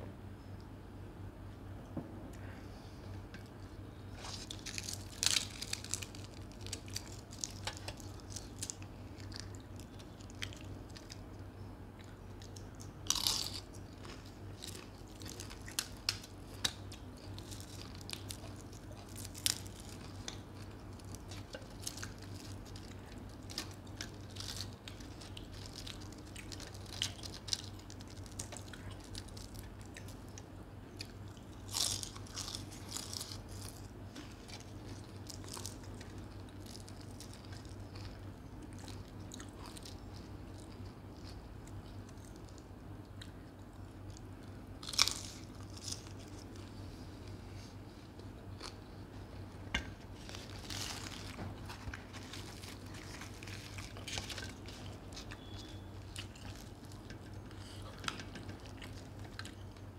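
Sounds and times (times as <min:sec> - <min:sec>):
low steady hum: 0:00.0 - 0:59.9
chewing and biting food: 0:12.0 - 0:46.9, 0:50.2 - 0:59.9.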